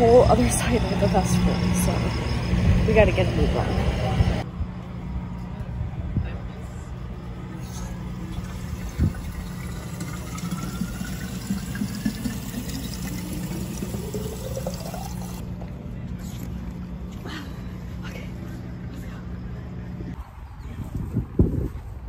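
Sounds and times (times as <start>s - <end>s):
water filling a bottle: 8.4s - 15.4s.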